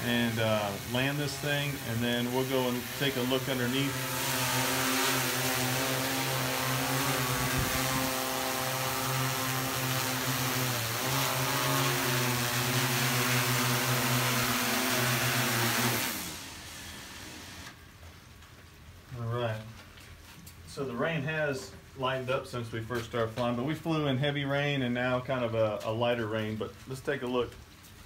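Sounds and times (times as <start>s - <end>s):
quadcopter propellers humming: 0.0s - 17.7s.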